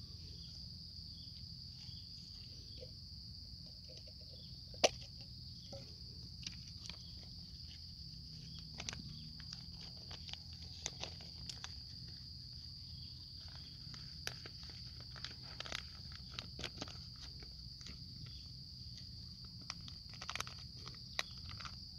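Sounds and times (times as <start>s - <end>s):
insects droning: 0.0s - 21.9s.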